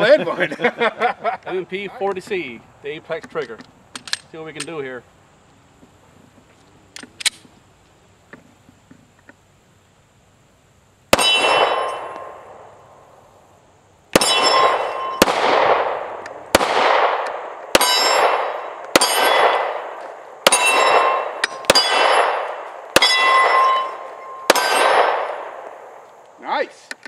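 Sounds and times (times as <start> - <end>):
pistol shots: 11.1 - 12.7, 14.1 - 26.0
steel plate target ringing: 11.2 - 12.4, 14.2 - 15.4, 17.8 - 19.8, 20.4 - 25.5.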